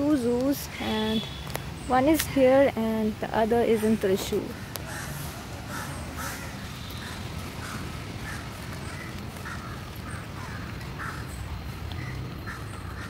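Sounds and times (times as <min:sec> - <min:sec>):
crows cawing: 0:04.8 - 0:11.4, 0:12.0 - 0:13.0.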